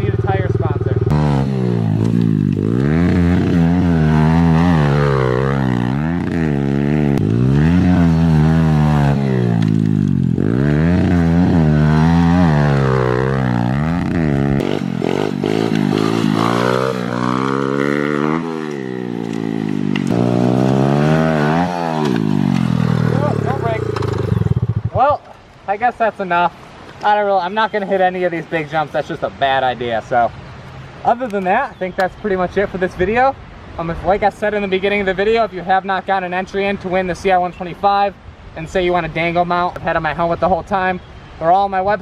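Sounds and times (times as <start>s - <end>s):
pit bike engine revving: 0.0s - 25.0s.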